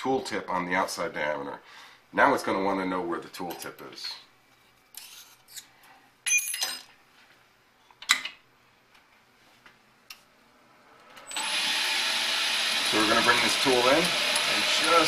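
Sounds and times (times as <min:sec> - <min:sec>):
lathe spindle whirring: 0:11.2 - 0:15.0.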